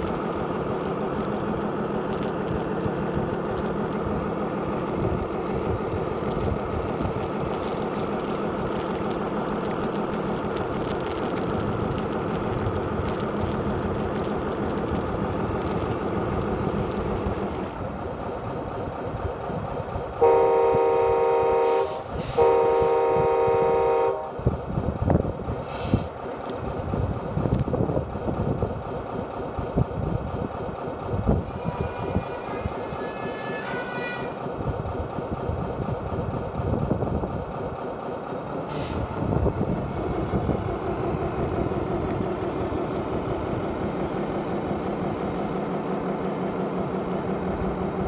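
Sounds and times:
long horn blasts: 20.2 - 24.4.

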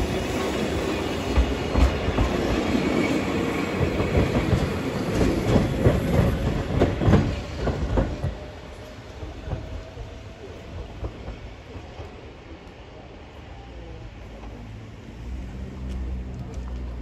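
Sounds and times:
train wheels rumbling and clacking: 0.0 - 13.3.

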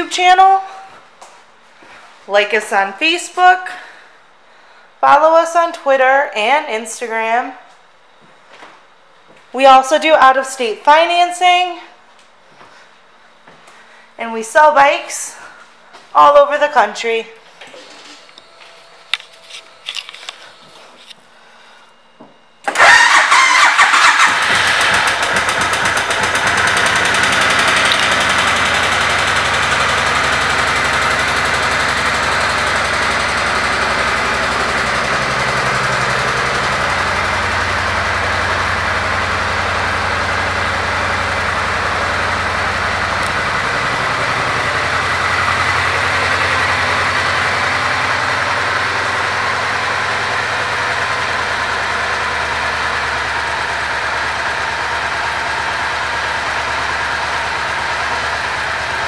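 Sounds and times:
motorcycle engine starting and idling: 22.6 - 59.0.

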